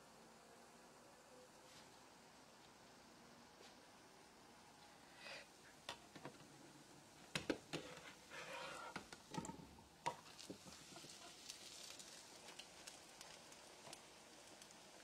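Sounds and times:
oil sizzling: 5.5 - 15.0
metal utensils scraping frying pan: 7.7 - 9.1.

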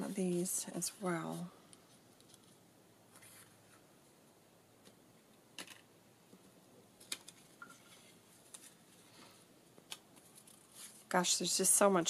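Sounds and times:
paper cards handled on table: 7.0 - 11.1.

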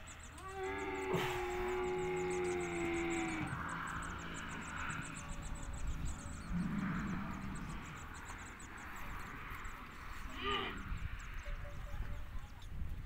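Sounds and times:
camel grumbling: 0.4 - 4.2, 10.2 - 11.0
steady low rumble: 1.0 - 13.0.

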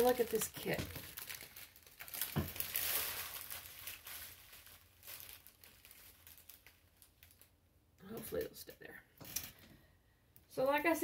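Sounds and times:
plastic packaging crinkling: 0.0 - 7.6.

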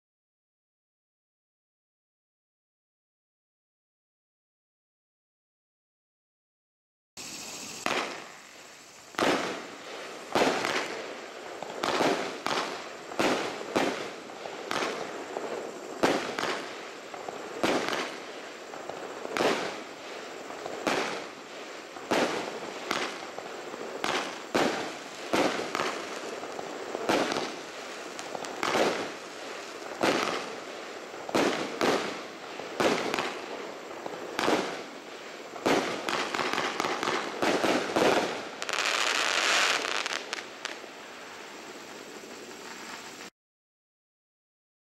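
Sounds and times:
firework battery reports: 7.2 - 10.6
firework hiss: 7.2 - 43.3.

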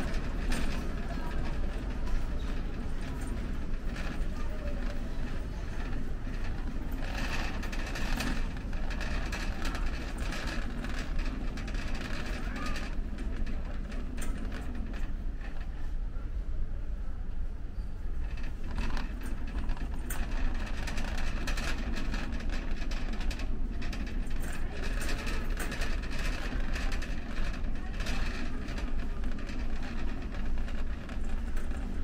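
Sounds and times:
faint background voices: 0.0 - 32.0
steady low hum: 0.0 - 32.0
clattering and clicks: 18.2 - 32.0.

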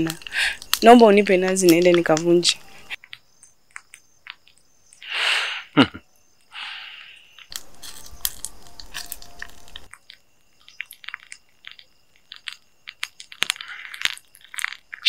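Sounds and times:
rustling: 7.2 - 15.0.

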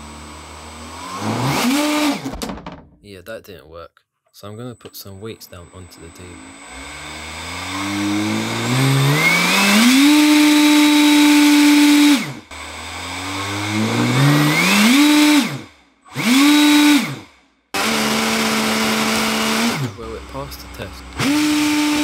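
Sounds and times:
motor spinning fan high whine: 5.5 - 17.2.

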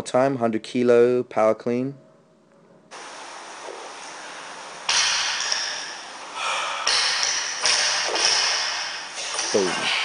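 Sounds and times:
steady hiss: 2.9 - 10.0.

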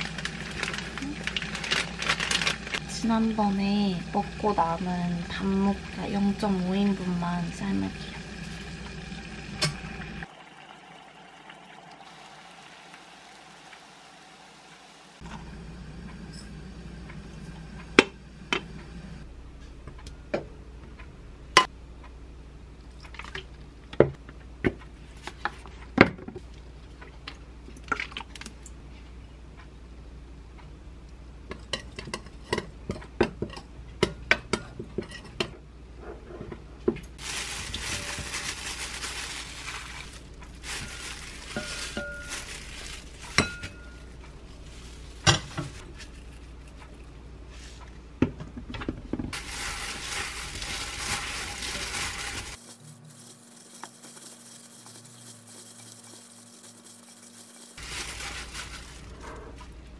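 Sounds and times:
pot of water boiling: 0.0 - 19.2, 49.3 - 59.9
rustling: 37.2 - 47.8, 49.3 - 59.8.

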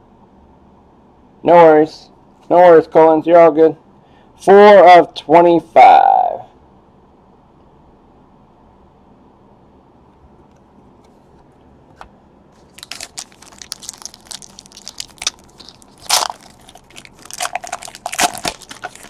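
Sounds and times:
plastic packaging crinkling: 12.6 - 19.0.

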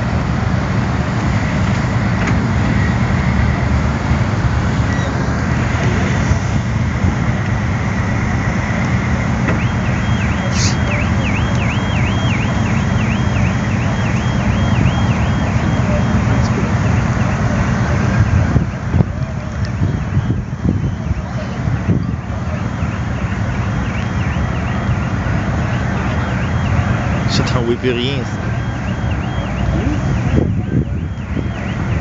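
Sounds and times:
water hose rushing: 0.0 - 18.9
fire truck pump engine rumble: 0.0 - 32.0
two-pitch electronic siren warble: 8.2 - 32.0.

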